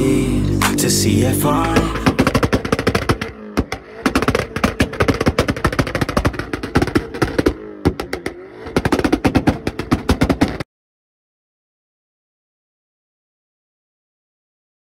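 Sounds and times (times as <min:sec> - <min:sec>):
car engine revving: 0:00.0 - 0:10.6
exhaust pops and bangs: 0:01.6 - 0:10.6.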